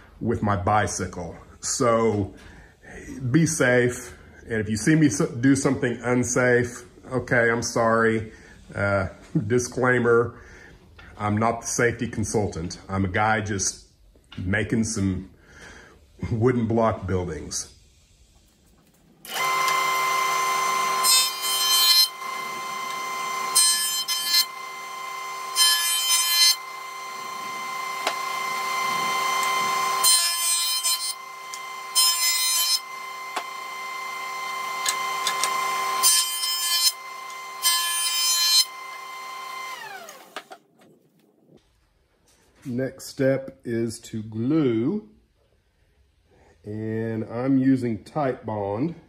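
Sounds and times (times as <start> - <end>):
jointer motor whining: 19.2 - 40.6
wood planing bursts: 19.2 - 40.6.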